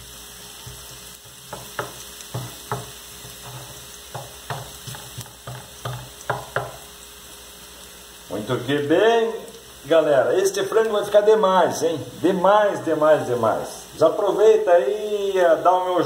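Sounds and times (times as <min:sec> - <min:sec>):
garlic sizzling in oil: 0:00.0 - 0:16.0
wooden spoon scraping a pan: 0:00.5 - 0:06.8.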